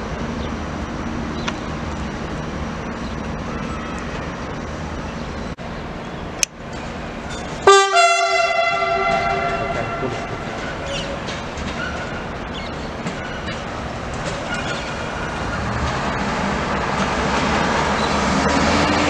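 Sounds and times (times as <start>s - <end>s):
railway engine idling: 0.0s - 18.5s
train horn blast: 7.6s - 10.6s.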